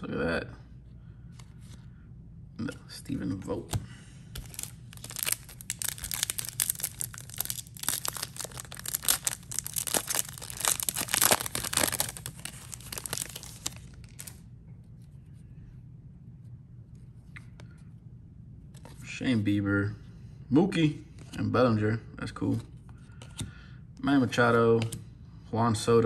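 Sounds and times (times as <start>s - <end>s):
wrapper crinkling and tearing: 4.4s - 14.4s.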